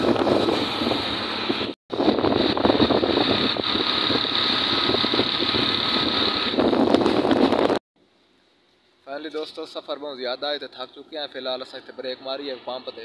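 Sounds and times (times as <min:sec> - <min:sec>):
motorcycle engine running: 0:00.0 - 0:07.8
wind rush on microphone: 0:00.0 - 0:07.8.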